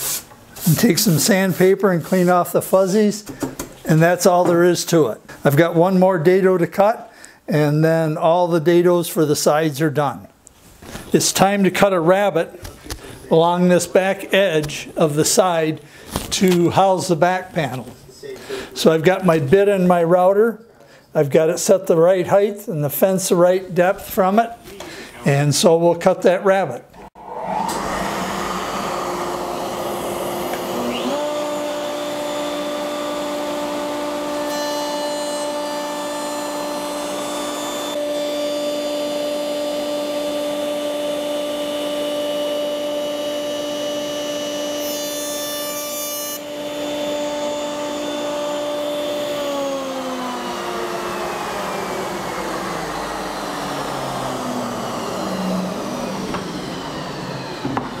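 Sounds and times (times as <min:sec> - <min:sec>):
router winding down: 0:27.0 - 0:45.3, 0:46.4 - 0:58.0
router whining: 0:27.0 - 0:58.0
router bit cutting wood hiss: 0:27.2 - 0:58.0.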